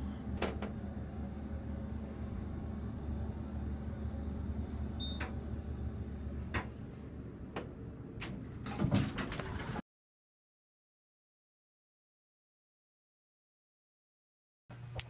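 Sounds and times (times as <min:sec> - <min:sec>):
elevator humming: 0:00.0 - 0:09.8.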